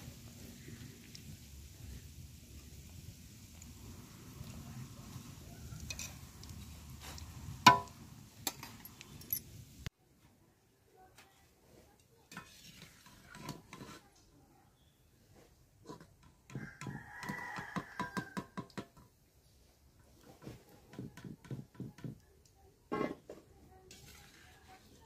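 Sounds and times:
oil sizzling: 0.0s - 9.9s, 23.9s - 25.0s
metal tongs clinking on pan: 5.8s - 6.6s.

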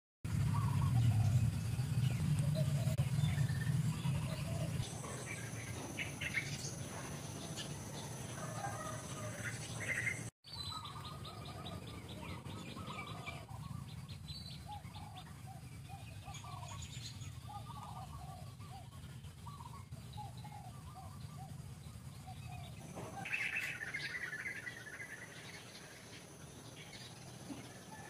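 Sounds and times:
low rumble: 0.3s - 8.4s
birds chirping and calling: 0.3s - 28.0s.

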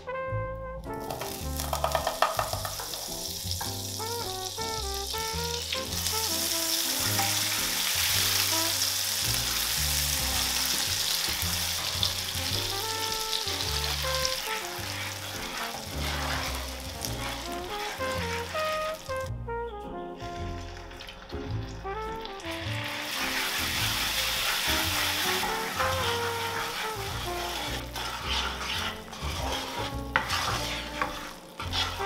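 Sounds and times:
butter sizzling in frying pan: 1.0s - 19.3s, 20.2s - 32.0s.

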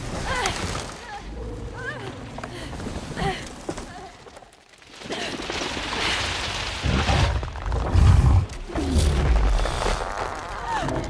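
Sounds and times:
crackling crashing noise: 4.5s - 11.0s.

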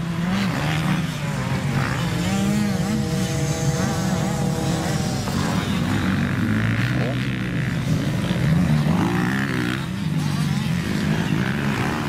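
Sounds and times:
motorcycle engines revving: 0.0s - 12.0s
steady engine drone: 0.0s - 12.0s.

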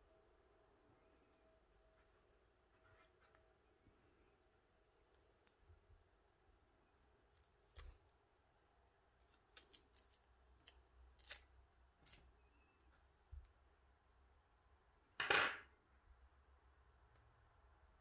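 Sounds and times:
room hum: 0.0s - 18.0s.

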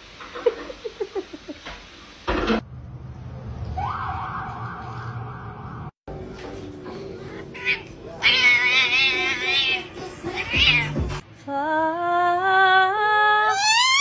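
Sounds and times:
cat yowling: 7.5s - 11.1s, 13.5s - 14.0s.

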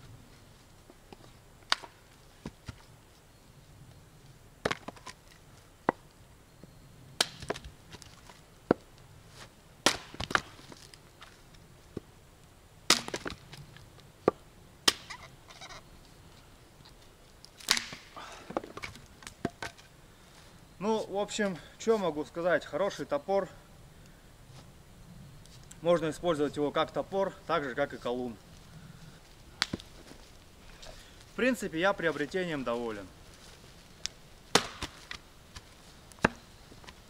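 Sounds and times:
axe chopping wood: 7.2s - 7.7s, 9.8s - 10.6s, 12.9s - 13.4s, 14.2s - 15.2s, 17.6s - 19.8s, 34.5s - 36.4s.

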